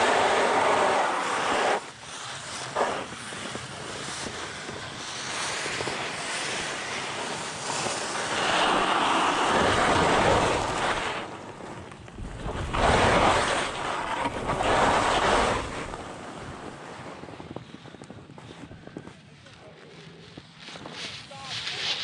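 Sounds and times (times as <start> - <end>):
skis scraping on snow: 0.0 - 22.0
wind buffeting microphone: 3.0 - 19.4.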